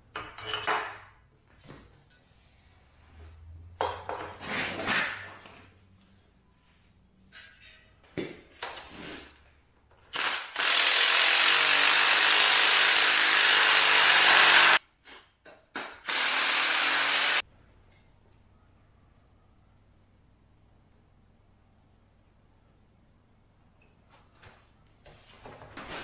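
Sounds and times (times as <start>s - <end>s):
power ratchet running: 10.2s - 14.8s, 16.1s - 17.4s.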